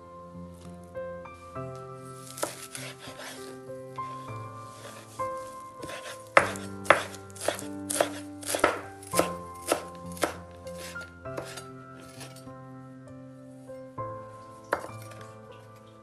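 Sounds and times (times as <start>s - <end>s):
knife chopping on wooden board: 2.3s - 3.4s, 5.8s - 12.4s.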